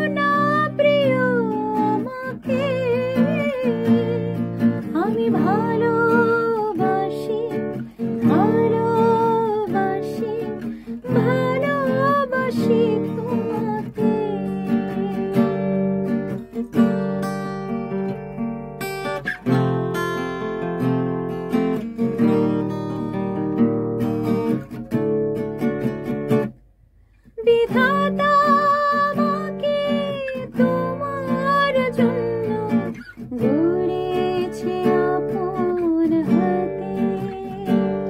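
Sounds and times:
woman singing: 0:00.0 - 0:16.6, 0:27.4 - 0:38.0
acoustic guitar strumming: 0:00.0 - 0:38.0.

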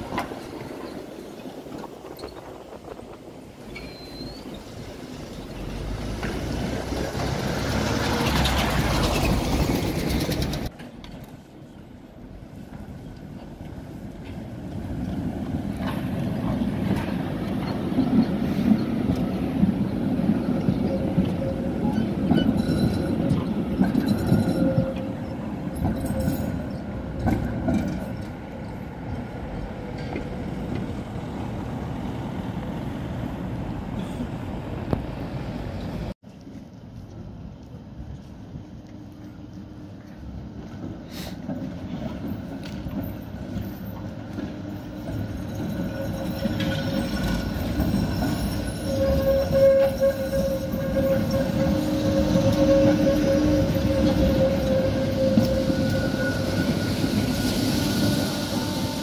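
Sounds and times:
tram wheels rumbling: 0:00.0 - 0:59.0
windy rush of passing tram: 0:00.0 - 0:59.0
faint wheel squeal: 0:03.6 - 0:04.7, 0:43.0 - 0:59.0.

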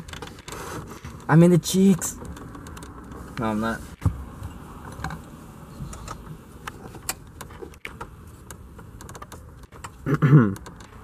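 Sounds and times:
tool clicks and metal taps: 0:01.9 - 0:03.2, 0:05.9 - 0:11.0.

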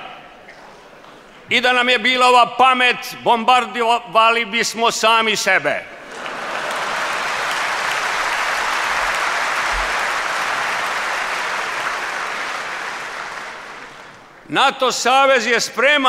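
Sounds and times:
audience applauding: 0:06.0 - 0:14.4.

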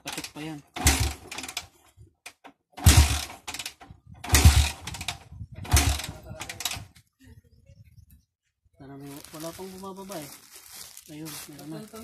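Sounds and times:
motorcycle engine kick-start turning over: 0:00.0 - 0:01.7, 0:02.3 - 0:06.9.

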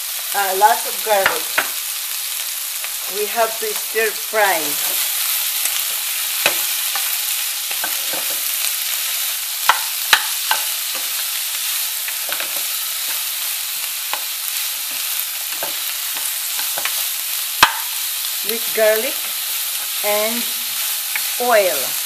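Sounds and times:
vegetables sizzling in hot oil: 0:00.0 - 0:22.0
spatula knocking and scraping pan: 0:05.9 - 0:08.6, 0:09.6 - 0:11.3, 0:12.0 - 0:13.3.

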